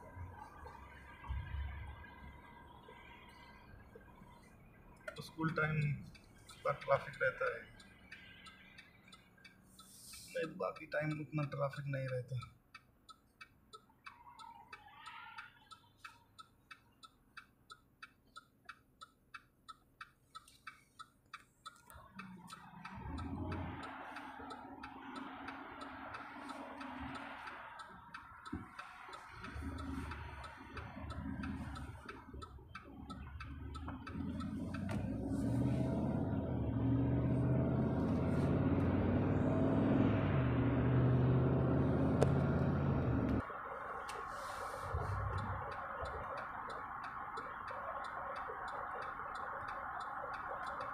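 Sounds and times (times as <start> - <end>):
car engine and tyre noise: 0.0 - 50.9
turn signal ticking: 0.0 - 50.9.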